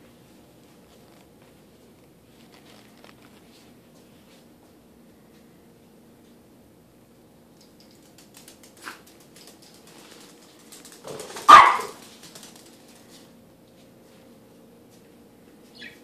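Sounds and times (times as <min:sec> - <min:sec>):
small dog barking: 0:11.4 - 0:12.0.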